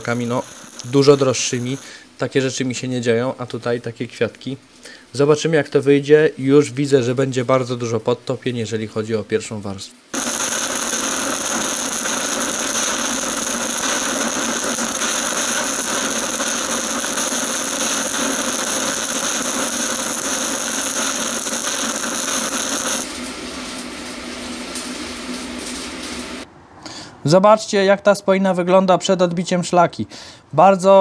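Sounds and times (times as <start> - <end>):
welding arc crackling and sizzling: 0.0 - 2.8, 10.0 - 26.5
quiet steady hiss: 0.0 - 23.0.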